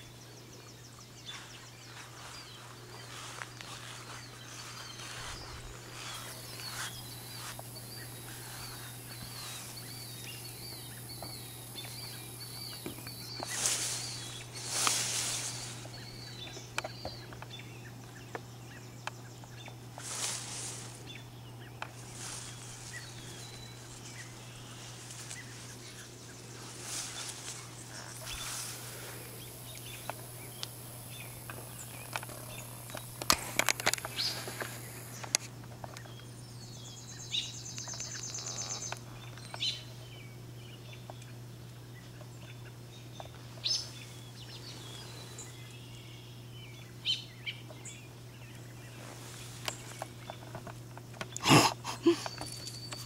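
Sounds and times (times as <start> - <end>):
bird chirping: 0.0 - 53.0
leaves rustling against camera: 0.9 - 17.6, 19.4 - 36.0, 48.5 - 53.0.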